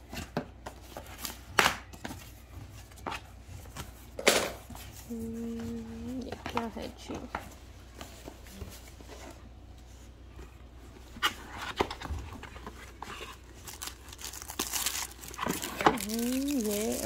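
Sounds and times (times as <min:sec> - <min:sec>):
packaging rustling and crinkling: 0:10.9 - 0:17.0.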